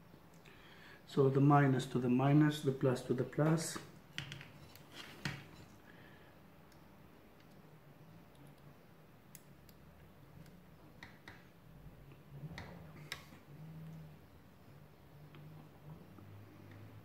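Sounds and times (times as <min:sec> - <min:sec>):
faint low hum: 0:00.0 - 0:17.0
sharp clicks and light taps: 0:10.4 - 0:11.5.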